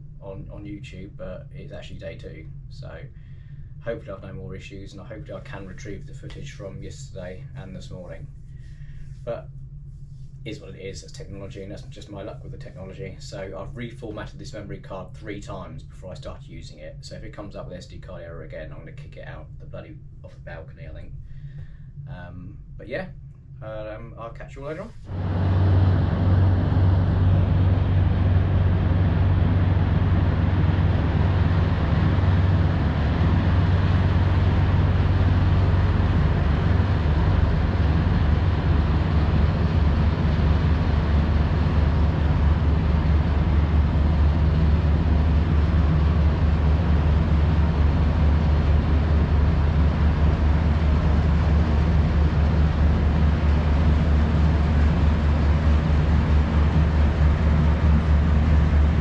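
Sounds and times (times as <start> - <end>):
marine diesel engines droning: 24.9 - 59.0.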